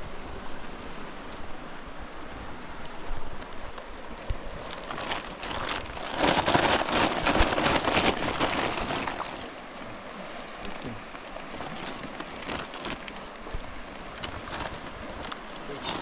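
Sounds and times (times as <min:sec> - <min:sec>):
river rushing: 0:00.0 - 0:16.0
crackling rustle: 0:03.3 - 0:16.0.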